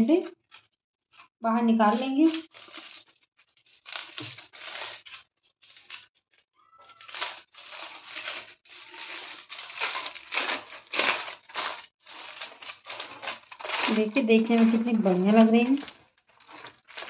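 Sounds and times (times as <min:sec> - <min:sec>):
aluminium foil crinkling: 0:00.0 - 0:17.0.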